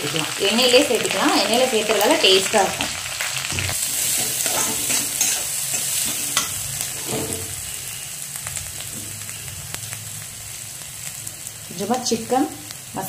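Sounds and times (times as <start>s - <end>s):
food sizzling in hot oil: 0.0s - 13.0s
spatula scraping a pan: 3.7s - 7.7s.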